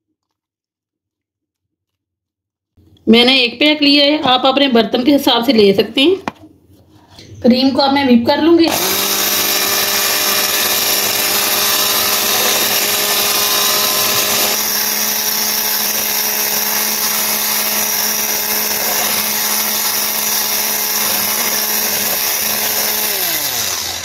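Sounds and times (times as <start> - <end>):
electric hand mixer whipping cream: 8.7 - 24.0.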